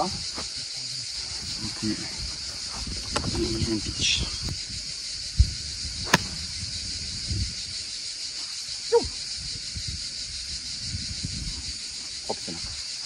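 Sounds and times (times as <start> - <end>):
wind rumble on microphone: 1.2 - 8.0, 8.9 - 12.9
golf club striking ball: 6.0 - 6.4.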